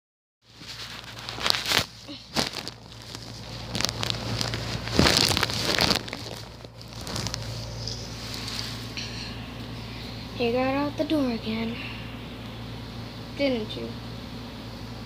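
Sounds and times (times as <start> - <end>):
rustling and crackling: 0.5 - 10.2
low steady hum: 0.5 - 15.0.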